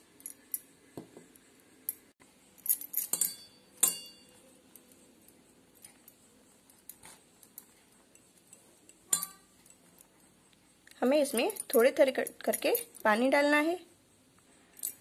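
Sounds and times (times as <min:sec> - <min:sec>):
clinks on steel mixing bowl: 0:03.0 - 0:04.4, 0:08.1 - 0:09.8.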